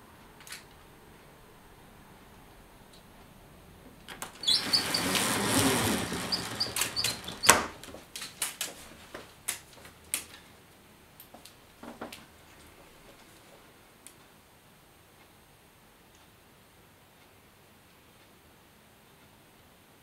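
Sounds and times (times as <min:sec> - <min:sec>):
sharp clicks and knocks: 0:04.0 - 0:10.4
window opening scrape: 0:04.1 - 0:08.1.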